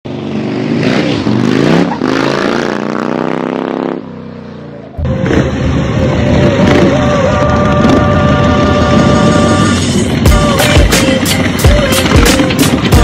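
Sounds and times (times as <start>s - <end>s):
motorcycle engine revving: 0.1s - 13.0s.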